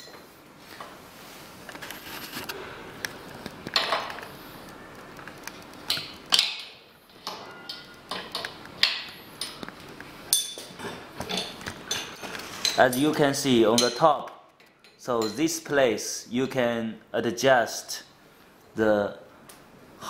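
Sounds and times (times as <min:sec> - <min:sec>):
spanner clinking against metal: 0:05.9 - 0:09.6, 0:10.3 - 0:14.1.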